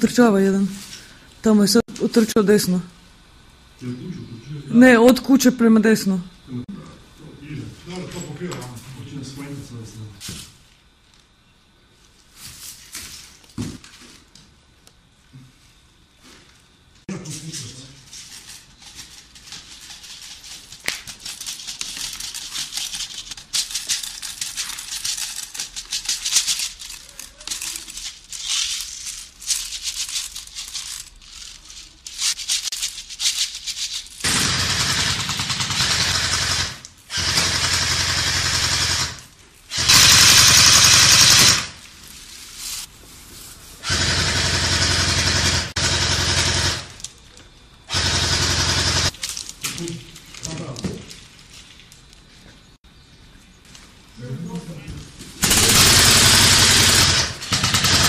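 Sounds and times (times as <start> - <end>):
gear clicking and rattling: 18.3 - 37.9, 55.4 - 58.0.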